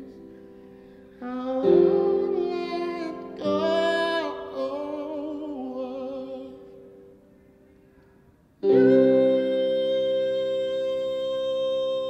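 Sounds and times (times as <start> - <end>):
loud sustained keyboard chord: 0.0 - 7.4, 8.6 - 12.0
man singing with vibrato: 1.2 - 7.1, 8.6 - 12.0
held keyboard note: 8.6 - 12.0.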